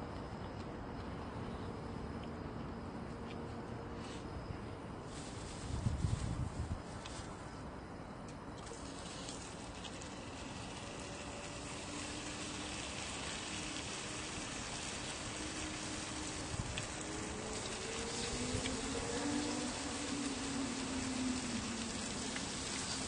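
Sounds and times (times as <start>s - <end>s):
meat sizzling on a griddle: 8.9s - 18.4s.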